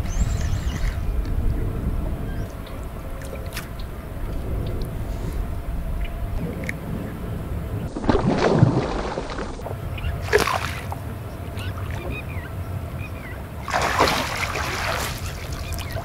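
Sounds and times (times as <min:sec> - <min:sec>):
fish thrashing water splashing: 0:07.9 - 0:11.0, 0:13.6 - 0:16.0
landing net swept through water: 0:10.2 - 0:10.9, 0:13.6 - 0:16.0.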